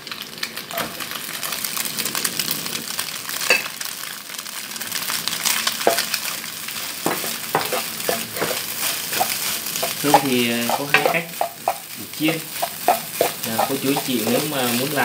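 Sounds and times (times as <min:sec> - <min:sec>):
rice sizzling in hot oil: 0:00.0 - 0:15.0
spatula scraping and knocking pan: 0:05.8 - 0:06.2, 0:06.9 - 0:15.0.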